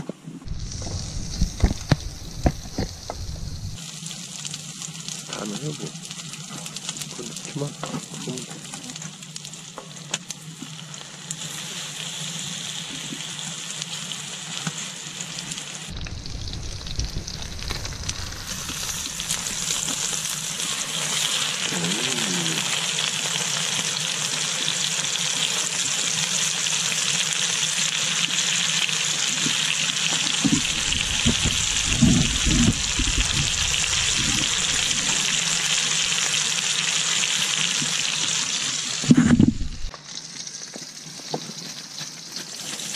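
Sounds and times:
oil sizzling in a frying pan: 0.4s - 42.9s
steak searing: 0.4s - 42.9s.

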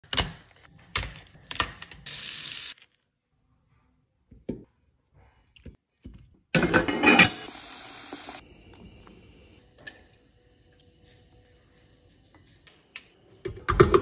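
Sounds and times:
tap water running: 7.1s - 9.2s.

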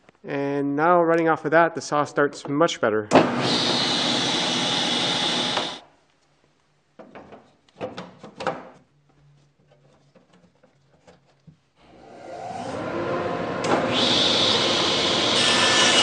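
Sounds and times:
table saw running: 3.2s - 5.8s, 12.0s - 16.0s.

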